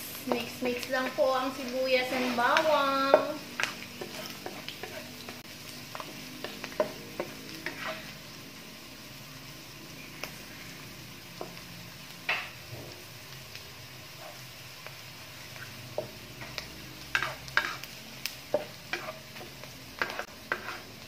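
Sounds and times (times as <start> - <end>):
onions sizzling in hot oil: 0.0 - 21.0
spatula scraping and tapping pan: 2.0 - 8.2, 15.6 - 17.9, 18.5 - 21.0.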